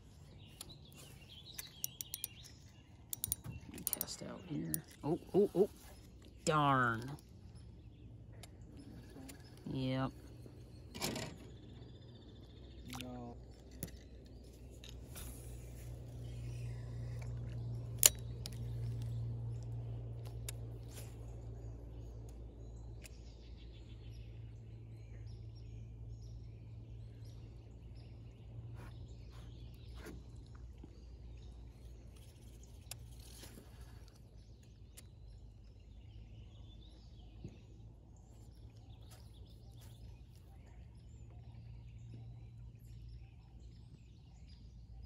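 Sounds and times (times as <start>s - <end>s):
birds chirping: 0.0s - 45.0s
steady low hum: 0.0s - 45.0s.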